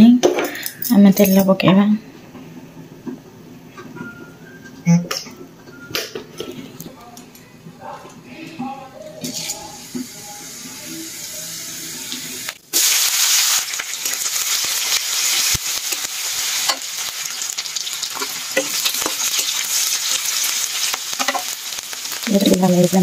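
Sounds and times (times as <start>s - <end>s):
onions sizzling in hot oil: 9.3s - 23.0s.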